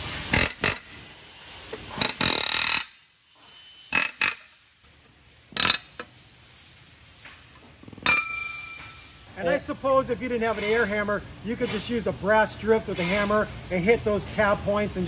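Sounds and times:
pneumatic air hammer bursts: 0.0s - 4.8s, 5.4s - 6.2s, 13.0s - 13.5s.

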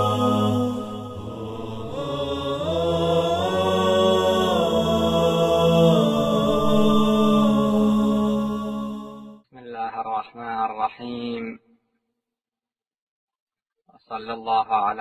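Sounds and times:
voices chanting long notes: 0.0s - 9.4s.

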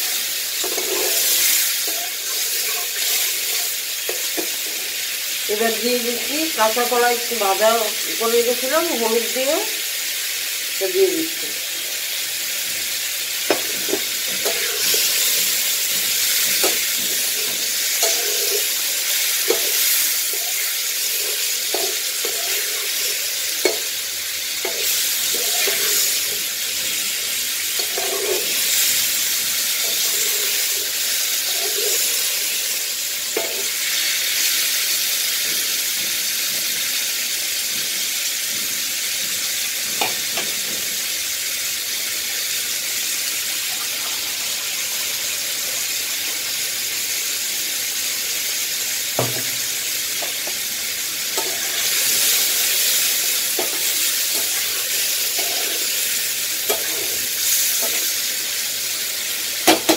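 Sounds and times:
food sizzling in oil: 0.0s - 59.9s
spatula scraping pan: 0.1s - 4.9s, 13.5s - 24.0s, 24.6s - 27.1s, 27.7s - 32.5s, 51.3s - 58.2s.

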